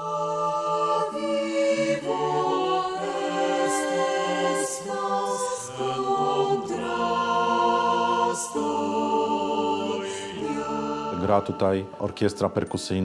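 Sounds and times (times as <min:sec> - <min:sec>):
mixed choir singing: 0:00.0 - 0:12.8.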